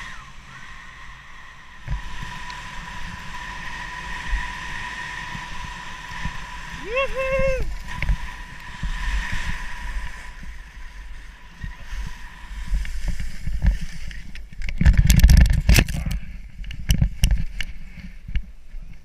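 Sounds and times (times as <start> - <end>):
wind rumbling on microphone: 0.0 - 19.0
skis running through snow: 1.9 - 14.6.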